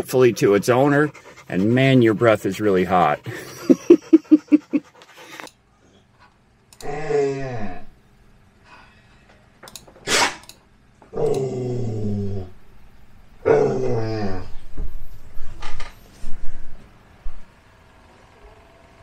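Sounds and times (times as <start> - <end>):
dog panting: 0.0 - 5.5
dog whining: 13.4 - 14.7.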